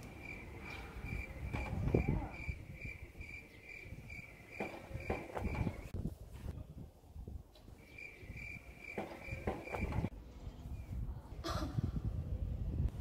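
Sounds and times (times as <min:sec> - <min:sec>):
cricket chirping: 0:00.2 - 0:05.9, 0:07.9 - 0:10.1.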